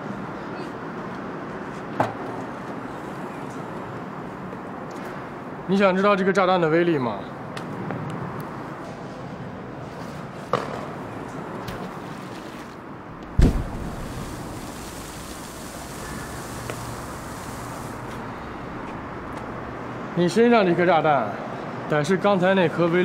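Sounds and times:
outdoor background hiss: 0:09.7 - 0:21.2
dull underwater boom: 0:13.3 - 0:14.9.

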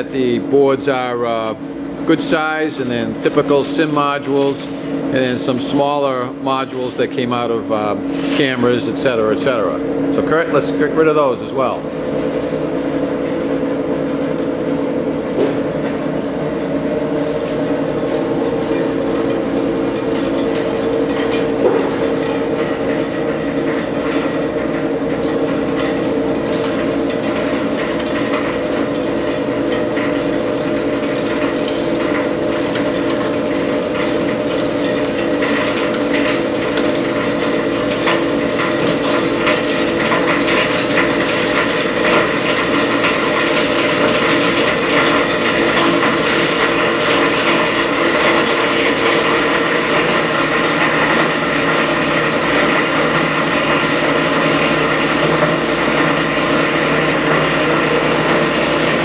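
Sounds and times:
motor hum: 0:00.0 - 0:59.0
shredder crunching electronics: 0:14.0 - 0:59.0.

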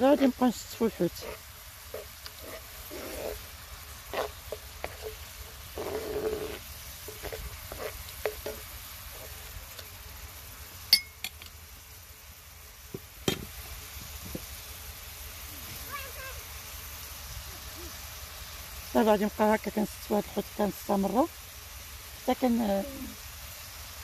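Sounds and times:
sauce bubbling in a pan: 0:00.0 - 0:24.0
spoon scraping a metal pan: 0:01.1 - 0:09.4.

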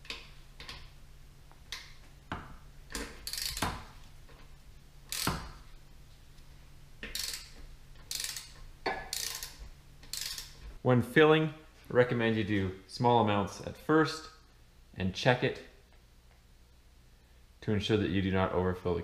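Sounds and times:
socket ratchet clicking: 0:02.9 - 0:04.0, 0:05.1 - 0:05.6, 0:07.0 - 0:10.6.

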